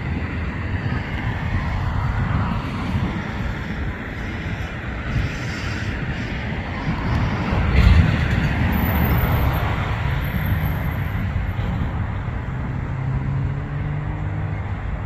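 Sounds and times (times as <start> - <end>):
road traffic noise: 0.0 - 15.0
distant diesel freight train rumble: 2.8 - 13.4.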